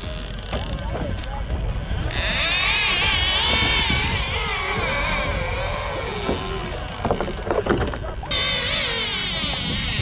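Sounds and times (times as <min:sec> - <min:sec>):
fishing reel drag whining: 0:02.1 - 0:07.5, 0:08.2 - 0:10.0.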